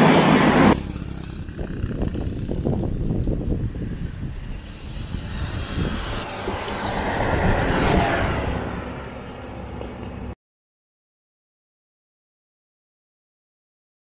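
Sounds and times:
bus passing on highway: 0.0 - 10.4.

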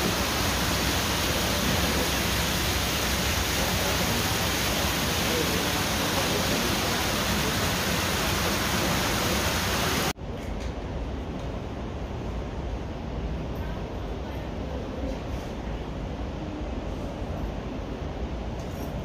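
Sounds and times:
steady rushing noise: 0.0 - 10.2.

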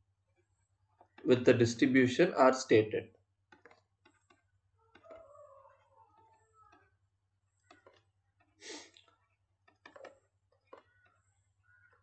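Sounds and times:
stylus tapping on a tablet: 3.2 - 12.0.

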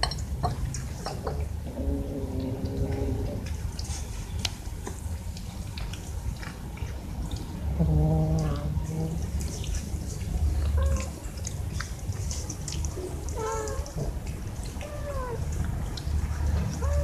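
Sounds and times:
cats meowing: 10.5 - 11.4, 13.0 - 15.6, 16.7 - 17.0.

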